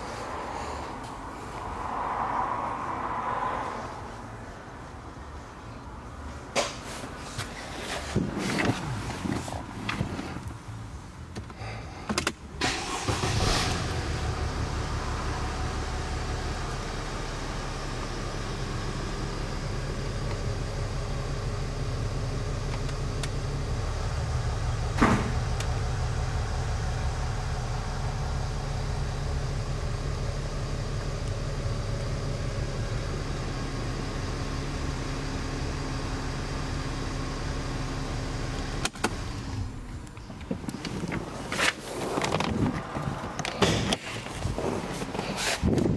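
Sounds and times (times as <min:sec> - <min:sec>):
car engine idling: 0:12.6 - 0:45.2.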